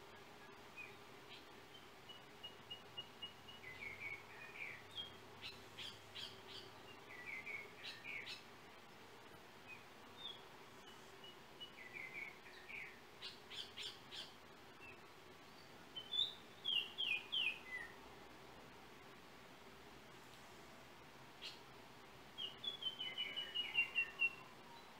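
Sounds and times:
bird whistling song: 0:00.4 - 0:08.4, 0:09.7 - 0:15.0, 0:16.0 - 0:18.0, 0:21.4 - 0:21.6, 0:22.4 - 0:24.9.

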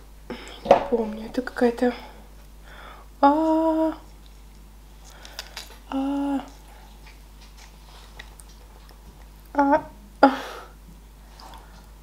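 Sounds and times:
woman humming mmm: 0:05.9 - 0:06.6.

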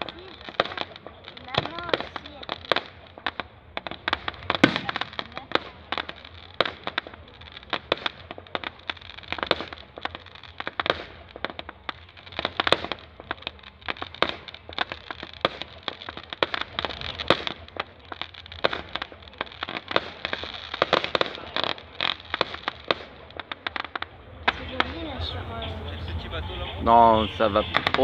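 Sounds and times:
fireworks bangs and crackling: 0:00.0 - 0:28.0.

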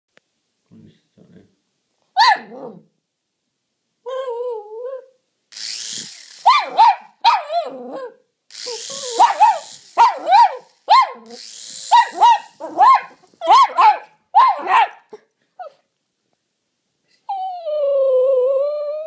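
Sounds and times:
dog yapping barks: 0:02.2 - 0:02.7, 0:06.4 - 0:08.2, 0:09.0 - 0:15.2
dog whining: 0:04.1 - 0:05.2, 0:05.9 - 0:15.9
toy helicopter rotors whirring: 0:05.5 - 0:07.0, 0:08.5 - 0:13.7.

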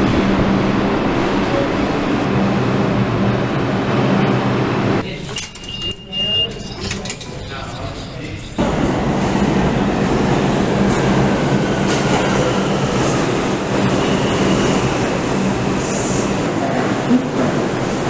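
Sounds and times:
train wheels rumbling on rail: 0:08.6 - 0:18.0
train brake squeal: 0:13.9 - 0:15.0.

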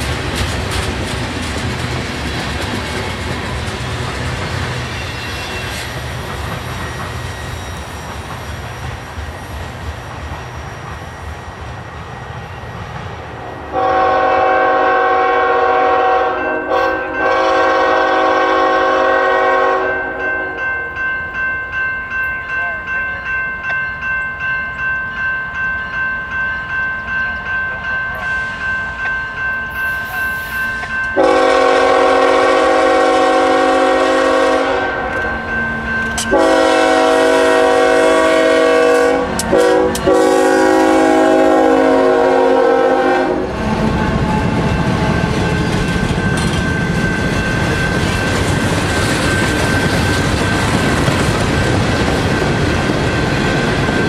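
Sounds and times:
locomotive bell ringing: 0:02.8 - 0:09.6, 0:13.4 - 0:54.0
locomotive air horn blasts: 0:13.7 - 0:20.6, 0:31.2 - 0:35.3, 0:36.3 - 0:43.5.

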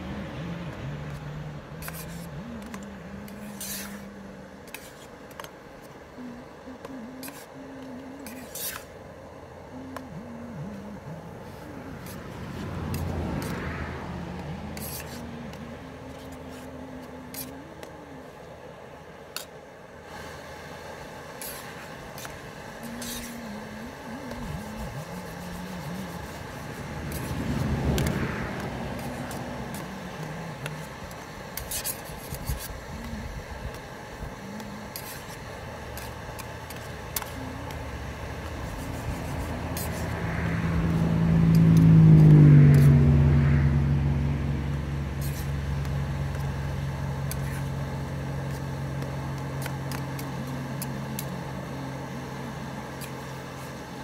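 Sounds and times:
vehicles passing by: 0:00.0 - 0:19.0, 0:21.8 - 0:54.0
small clicks and scrapes: 0:01.1 - 0:06.0, 0:06.8 - 0:09.0, 0:12.0 - 0:13.6, 0:14.4 - 0:18.0, 0:19.3 - 0:19.6, 0:21.4 - 0:23.5, 0:24.2 - 0:40.2, 0:45.2 - 0:46.6, 0:47.2 - 0:51.4, 0:52.9 - 0:54.0.

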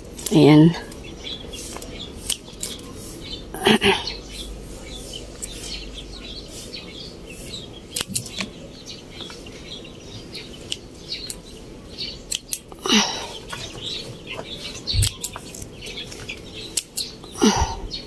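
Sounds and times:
pruning shears snipping: 0:01.7 - 0:02.9, 0:07.9 - 0:08.5.

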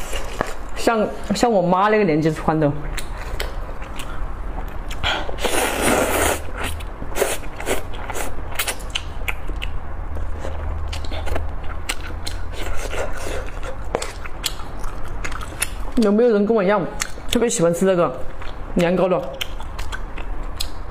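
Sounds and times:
chewing with wet mouth clicks: 0:02.8 - 0:05.1, 0:06.6 - 0:16.1, 0:16.9 - 0:17.5, 0:18.2 - 0:20.9
slurping noodles: 0:05.3 - 0:08.3.

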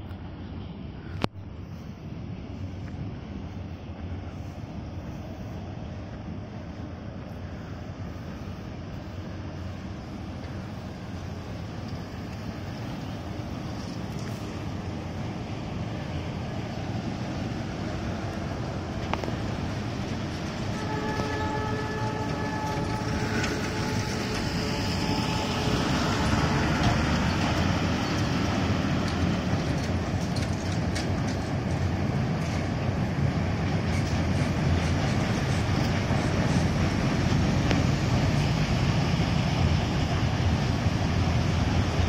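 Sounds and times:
freight train on steel bridge: 0:00.0 - 0:42.0
train horn: 0:20.6 - 0:28.1.

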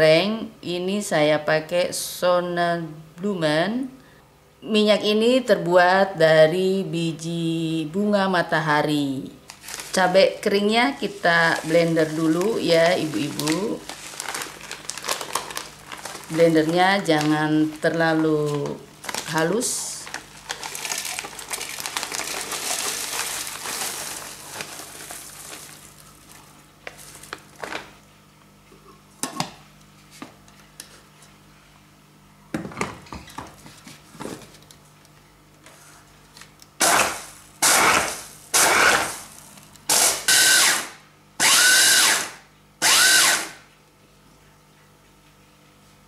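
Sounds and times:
dried chillies rustling into bowl: 0:09.5 - 0:10.2, 0:11.0 - 0:28.0
electric mini chopper pulsing: 0:36.8 - 0:43.5.

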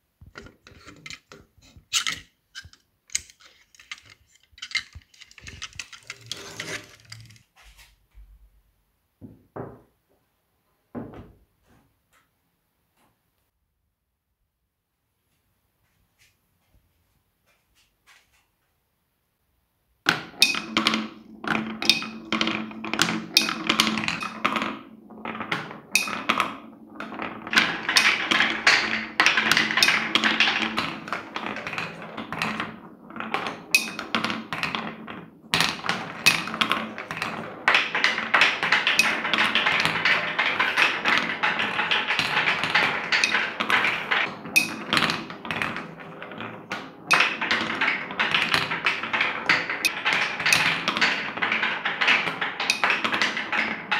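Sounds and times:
balls circling in a funnel: 0:00.2 - 0:07.5, 0:20.1 - 0:53.9
marble balls rumbling on wood: 0:00.2 - 0:07.6, 0:20.0 - 0:53.9
marbles clacking: 0:00.4 - 0:07.4, 0:20.1 - 0:53.9.

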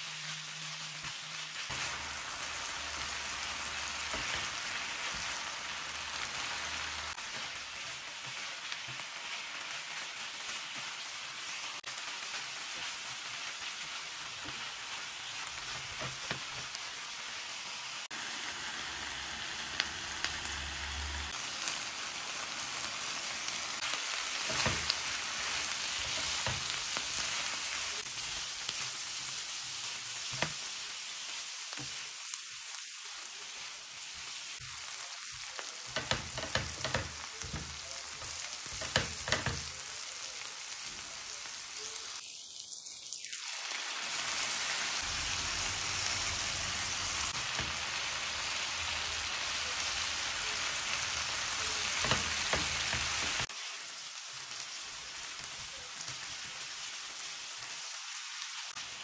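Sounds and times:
food sizzling in hot oil: 0:00.0 - 0:59.0.

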